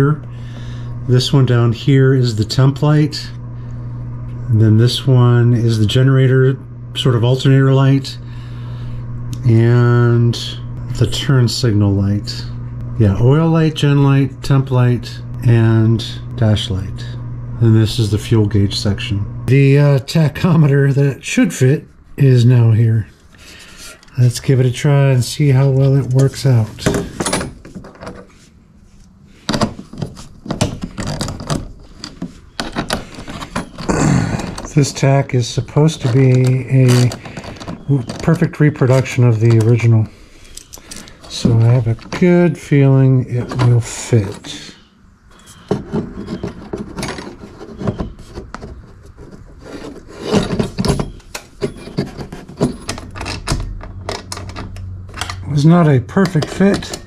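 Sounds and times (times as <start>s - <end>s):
gauge scraping and knocking in housing: 29.4s - 42.4s, 45.3s - 57.0s.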